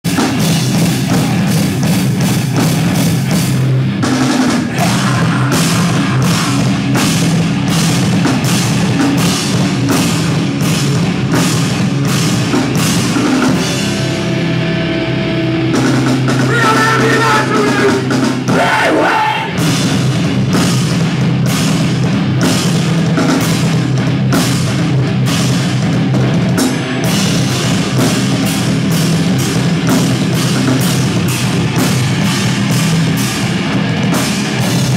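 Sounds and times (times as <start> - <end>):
distorted electric guitars: 0.0 - 34.9
drum kit hit hard: 0.1 - 14.6.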